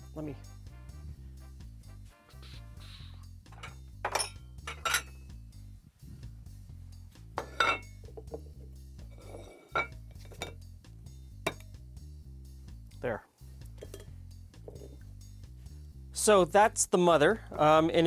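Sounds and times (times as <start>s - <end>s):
soft background music: 0.0s - 18.0s
plate set down on wooden counter: 13.8s - 14.1s, 14.7s - 14.9s.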